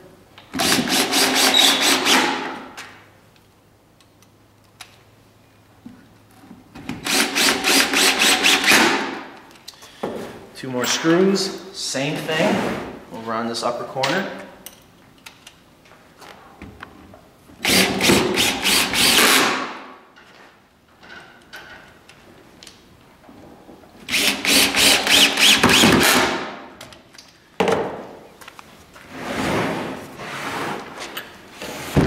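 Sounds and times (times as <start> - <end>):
cordless drill driving screws: 0.6 - 2.3, 17.6 - 19.6, 24.1 - 26.3.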